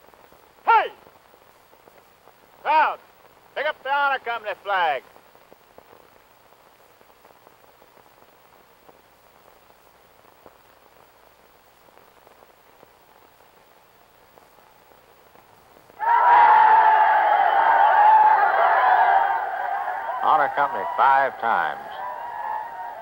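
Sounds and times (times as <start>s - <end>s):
old film soundtrack crackle: 0.0s - 23.0s
crowd of voices: 16.0s - 23.0s.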